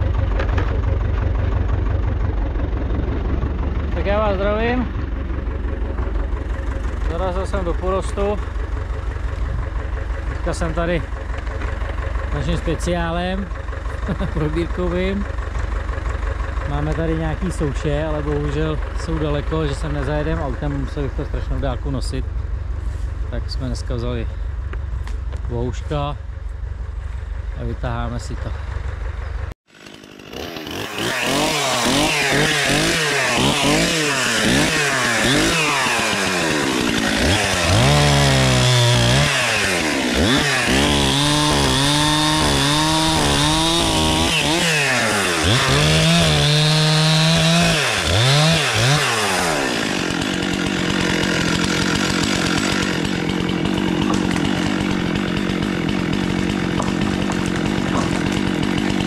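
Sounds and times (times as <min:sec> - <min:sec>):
chainsaw cutting wood: 0:00.0 - 0:01.8, 0:29.6 - 0:59.0.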